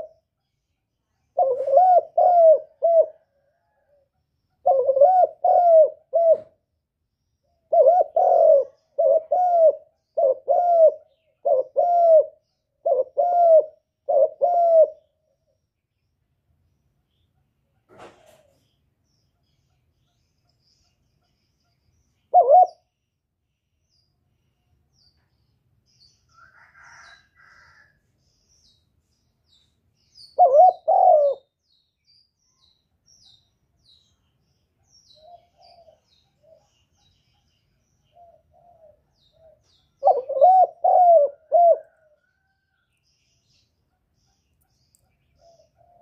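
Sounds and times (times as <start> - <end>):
dove cooing: 0.0 - 0.2, 1.3 - 4.0, 4.6 - 6.6, 7.6 - 15.1, 22.3 - 22.9, 30.4 - 31.5, 35.1 - 36.8, 38.1 - 42.5, 45.4 - 46.0
faint high chirping: 28.1 - 46.0.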